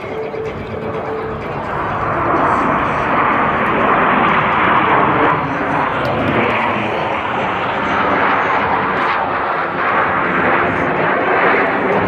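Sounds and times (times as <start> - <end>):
jet engines flying overhead: 0.0 - 12.0.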